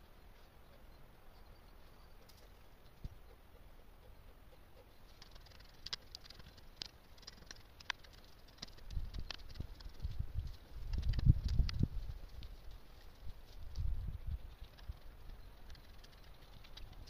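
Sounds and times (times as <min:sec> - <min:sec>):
clods and stones clicking: 0:05.0 - 0:17.0.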